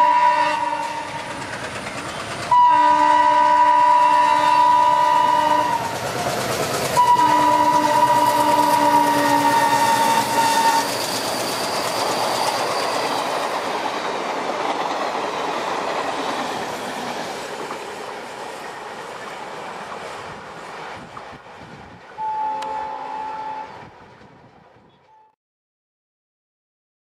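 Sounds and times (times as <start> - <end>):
train horn: 0.0 - 1.3, 2.5 - 6.0, 7.0 - 11.0, 22.2 - 23.9, 24.9 - 25.4
train wheels clattering over rail joints: 0.8 - 2.6, 5.8 - 22.2.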